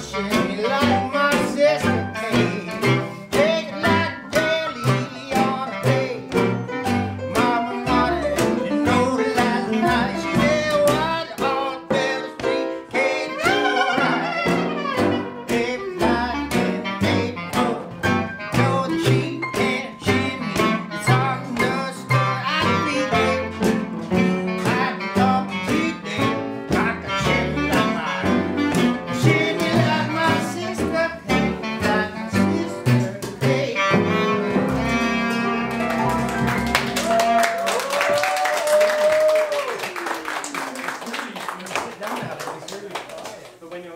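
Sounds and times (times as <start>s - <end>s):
person singing: 0.0s - 6.6s, 7.2s - 35.7s
upright piano: 0.0s - 42.6s.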